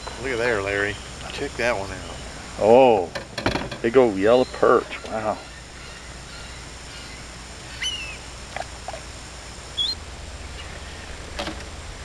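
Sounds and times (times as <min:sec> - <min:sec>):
gulls calling: 0:00.0 - 0:12.0
faint low rumble: 0:05.4 - 0:12.0.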